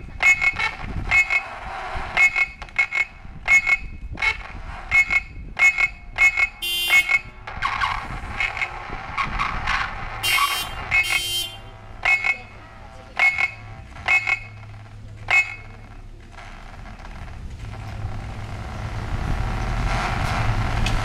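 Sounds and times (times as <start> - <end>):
low rumbling noise: 0.0 - 21.0
car alarm siren chirps: 0.2 - 4.0, 13.2 - 14.6.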